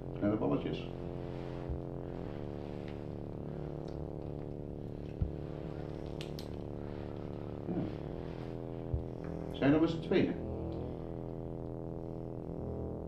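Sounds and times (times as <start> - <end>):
low hum with overtones: 0.0 - 13.0.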